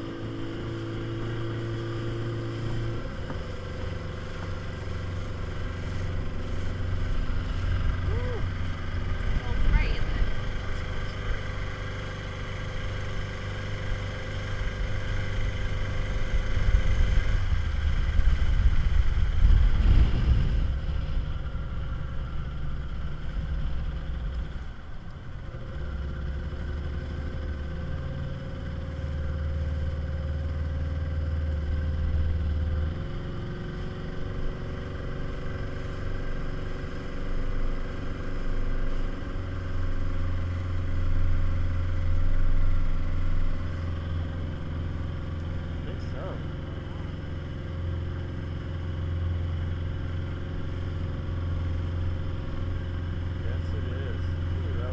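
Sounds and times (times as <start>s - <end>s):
speedboat motor running: 0.0s - 54.9s
wind noise on microphone: 16.5s - 21.4s.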